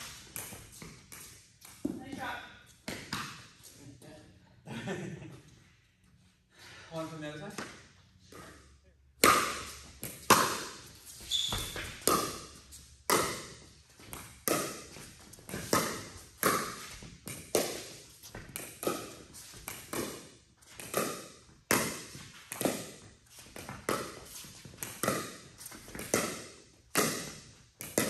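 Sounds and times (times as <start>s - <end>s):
ball bouncing on court: 0.4s - 3.5s, 9.2s - 28.0s.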